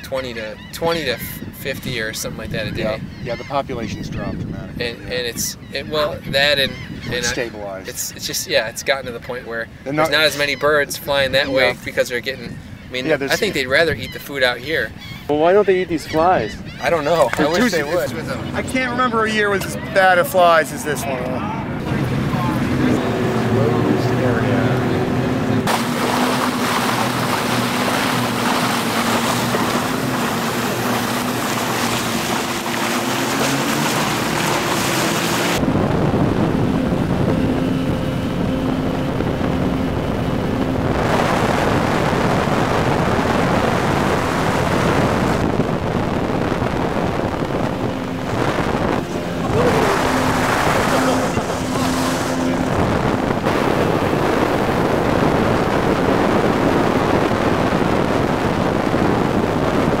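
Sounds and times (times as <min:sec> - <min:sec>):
motorboat engine hum: 0:00.0 - 1:00.0
wind rush: 0:01.0 - 0:08.3, 0:21.6 - 1:00.0
water rushing against hull: 0:04.7 - 0:15.4, 0:16.2 - 1:00.0.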